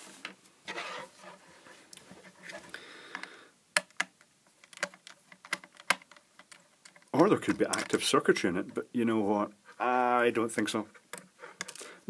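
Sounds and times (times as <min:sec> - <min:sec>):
small sharp clicks and taps: 0:03.1 - 0:07.1.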